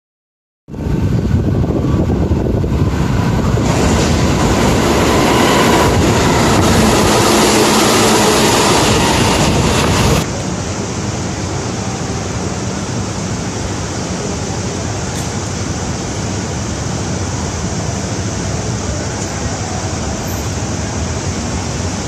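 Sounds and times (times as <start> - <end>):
electric train passing at speed: 0.7 - 22.0.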